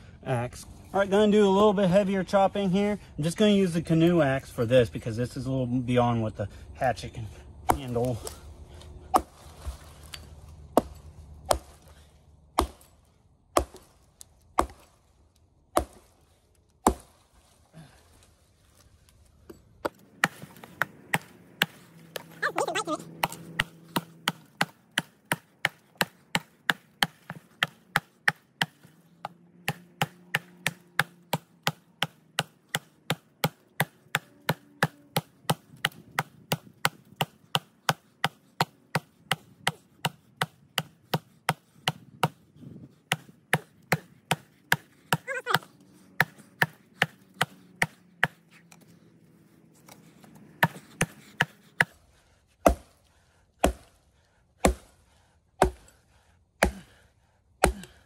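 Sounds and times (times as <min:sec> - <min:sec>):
axe chopping log: 0:07.6 - 0:15.1, 0:15.7 - 0:16.2, 0:16.8 - 0:17.6, 0:19.8 - 0:48.9, 0:49.8 - 0:52.0, 0:52.6 - 0:54.0, 0:54.6 - 0:56.0, 0:56.6 - 0:57.0, 0:57.6 - 0:58.0.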